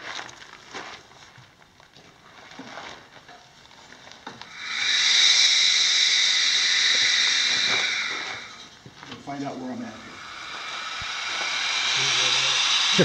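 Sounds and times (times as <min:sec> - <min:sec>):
air hissing from cylinder: 0:04.5 - 0:13.0.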